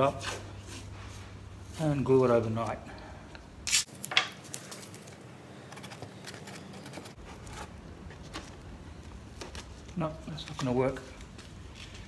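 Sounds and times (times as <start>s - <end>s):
masking tape ripping: 3.6s - 5.0s
tape rustling: 3.6s - 12.0s.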